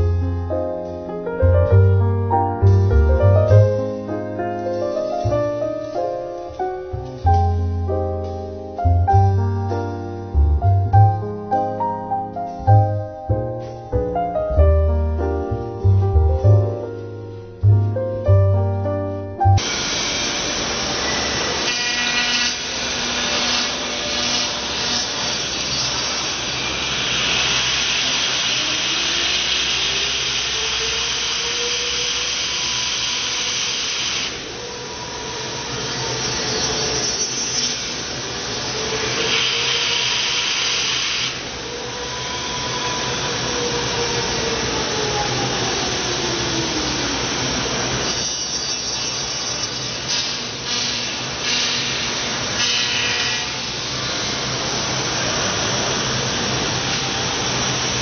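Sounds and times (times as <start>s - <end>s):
router spindle milling foam: 19.6s - 58.0s.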